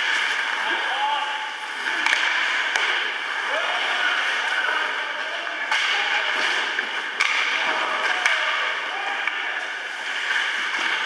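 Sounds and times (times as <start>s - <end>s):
skates on ice: 0.0s - 11.0s
stick hitting puck: 2.0s - 3.0s, 5.7s - 6.4s, 7.2s - 9.4s.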